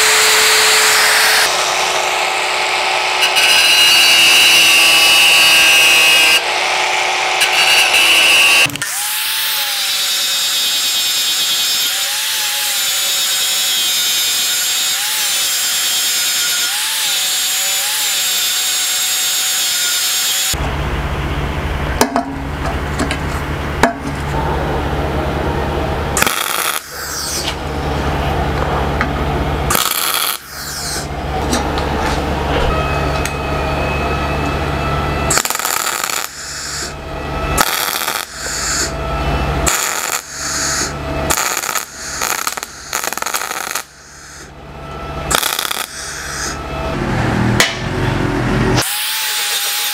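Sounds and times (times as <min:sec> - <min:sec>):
angle grinder sanding steel: 0:00.0 - 0:20.6, 0:26.2 - 0:27.6, 0:29.7 - 0:31.2, 0:35.3 - 0:44.5, 0:45.2 - 0:47.0, 0:48.8 - 0:49.9
steady low hum: 0:20.5 - 0:37.6, 0:38.2 - 0:48.8
sharp cracks: 0:26.2 - 0:27.6, 0:37.6 - 0:38.9, 0:39.7 - 0:44.5, 0:45.3 - 0:46.6.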